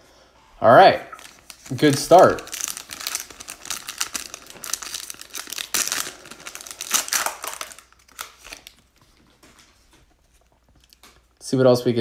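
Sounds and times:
foil wrapper crinkling and tearing: 1.2s - 9.0s.

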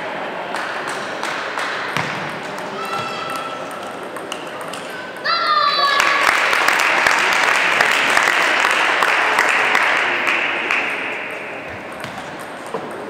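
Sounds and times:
audience applauding: 5.8s - 11.4s.

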